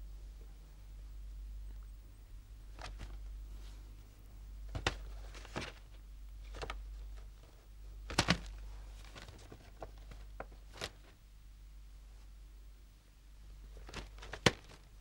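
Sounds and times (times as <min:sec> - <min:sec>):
faint low hum: 0:00.0 - 0:15.0
paper rustling: 0:02.7 - 0:03.8, 0:04.7 - 0:11.2, 0:13.7 - 0:15.0.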